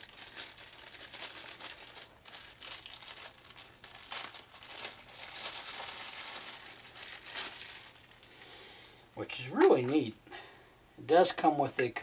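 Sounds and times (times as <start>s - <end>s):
plastic bag crinkling: 0.0s - 8.4s.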